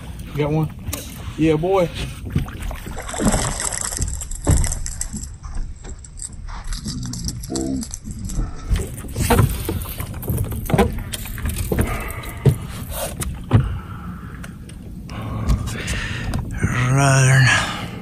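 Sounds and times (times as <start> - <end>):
thumps on boat deck: 10.4 - 11.0.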